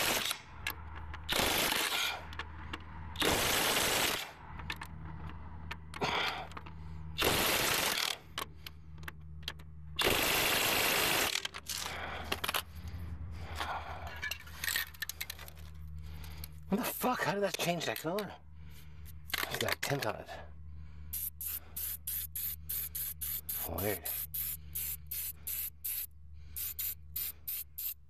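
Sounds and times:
steady low hum: 0.0s - 28.0s
paint spraying in hissing bursts: 21.1s - 28.0s.

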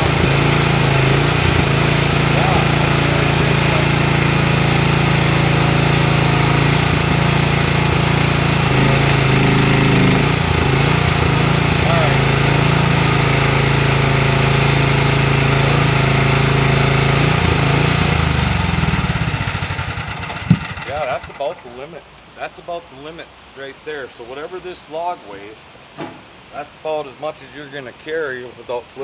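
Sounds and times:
mini excavator engine under load: 0.0s - 21.8s.

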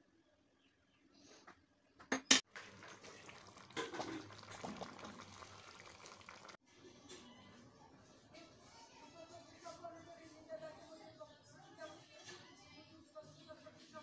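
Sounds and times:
curry sizzling and bubbling: 2.4s - 6.6s.

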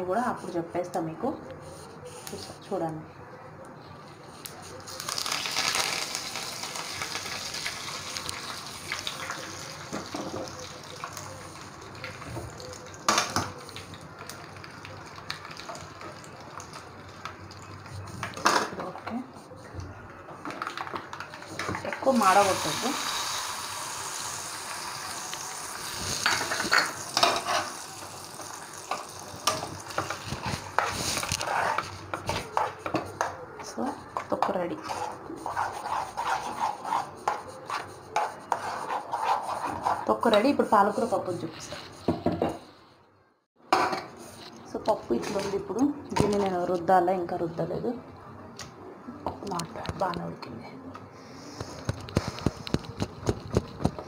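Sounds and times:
leaves sizzling in hot oil: 5.0s - 17.7s, 22.0s - 31.4s
spoon scraping a pan: 24.2s - 33.4s, 34.0s - 42.6s.

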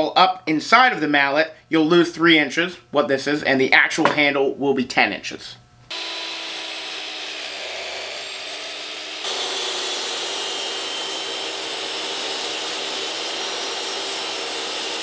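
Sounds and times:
miter saw running: 5.9s - 15.0s
table saw ripping a board: 5.9s - 15.0s.

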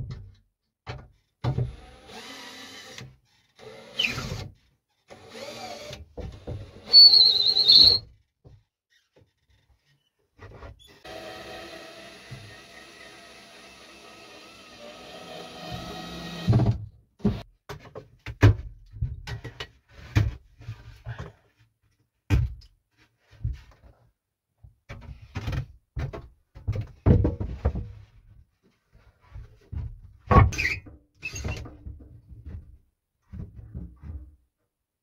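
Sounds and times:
board knocking and thudding: 24.9s - 28.0s.

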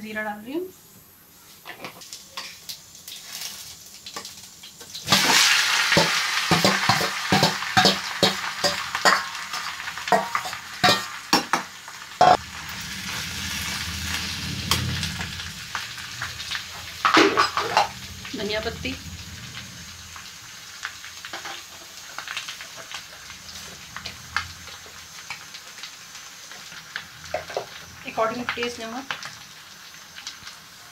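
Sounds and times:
food sizzling in hot oil: 1.4s - 30.9s
metal spoon scraping a pan: 17.0s - 18.0s.

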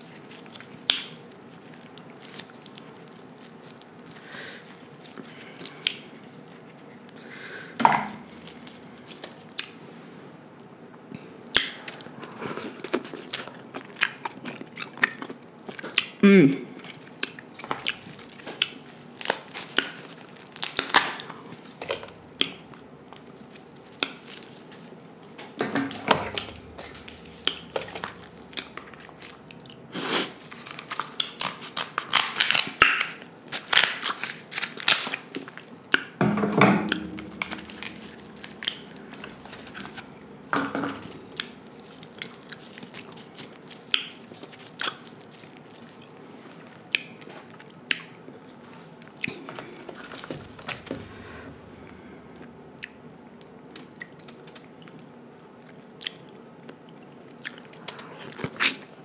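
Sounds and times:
crab shells cracking: 17.0s - 25.0s, 25.9s - 29.9s, 30.5s - 36.2s, 36.8s - 46.2s, 49.3s - 58.9s
shells crunching: 25.8s - 29.6s, 36.8s - 43.6s.

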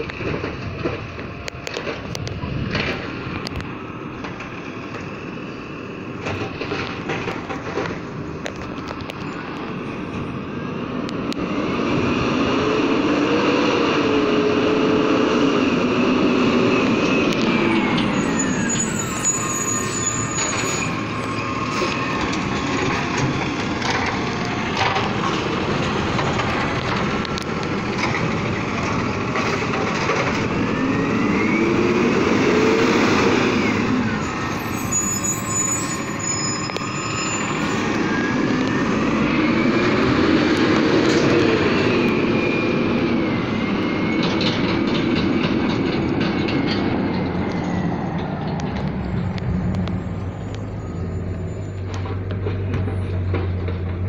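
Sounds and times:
knocks and clatter: 0.0s - 5.0s, 6.2s - 9.1s, 21.8s - 30.6s, 51.8s - 54.0s
diesel engine and hydraulics: 0.0s - 54.0s.

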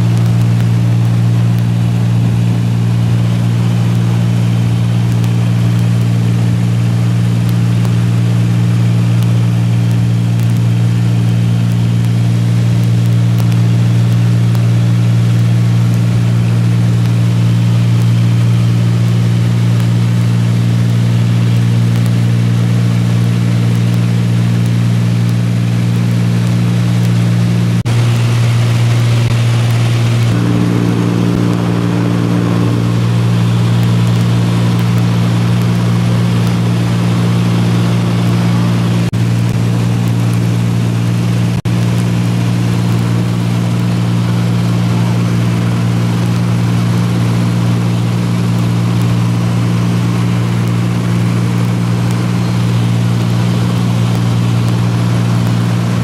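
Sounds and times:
light aircraft engine droning: 0.0s - 56.0s.

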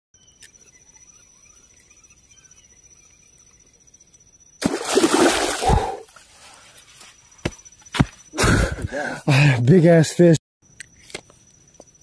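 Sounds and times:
loud splash in water: 4.6s - 6.0s.

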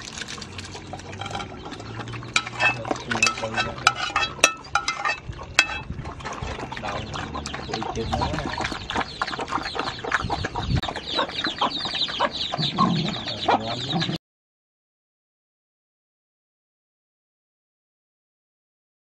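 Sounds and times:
chickens clucking: 0.0s - 14.2s
dogs lapping and chewing: 0.0s - 14.2s.

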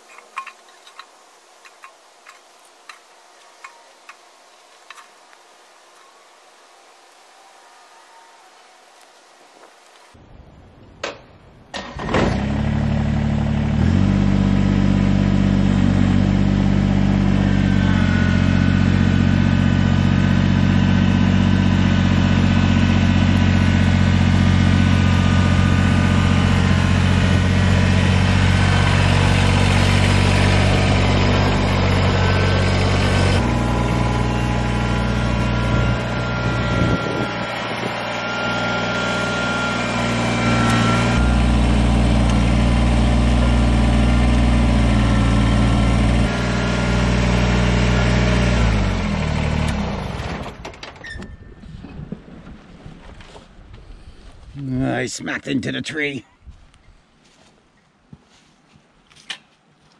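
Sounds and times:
diesel tractor engine running: 11.8s - 51.5s.

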